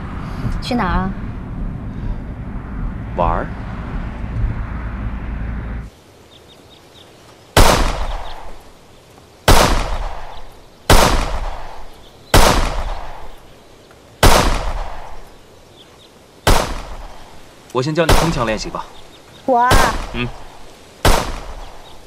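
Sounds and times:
pistol shots: 7.6s - 8.5s, 9.5s - 13.4s, 14.2s - 15.2s, 16.5s - 17.2s, 18.1s - 18.6s, 21.0s - 21.7s.

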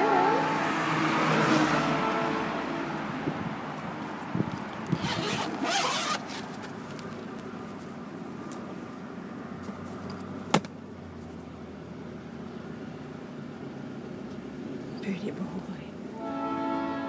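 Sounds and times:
zipper being pulled open: 4.8s - 6.8s.

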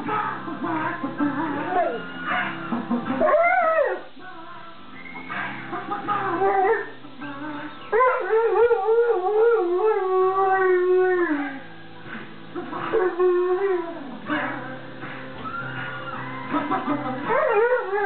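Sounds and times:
music: 0.0s - 18.0s
dog howling: 1.3s - 2.6s, 3.2s - 4.1s, 6.2s - 7.0s, 7.9s - 11.7s, 12.8s - 14.6s, 17.3s - 18.0s.

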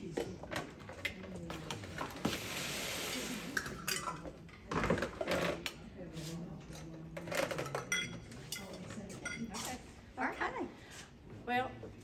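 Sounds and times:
dishes clinking and knocking: 3.6s - 5.7s, 7.2s - 9.6s.

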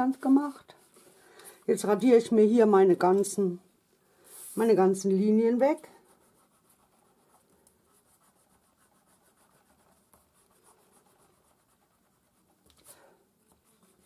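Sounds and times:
eraser scrubbing on paper: 5.9s - 12.7s, 13.5s - 14.0s.

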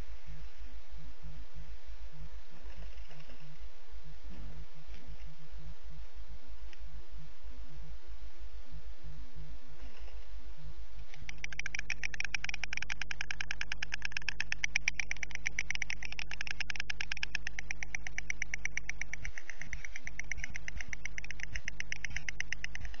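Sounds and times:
steady low hum: 0.0s - 23.0s
storks clattering bills: 11.2s - 23.0s.

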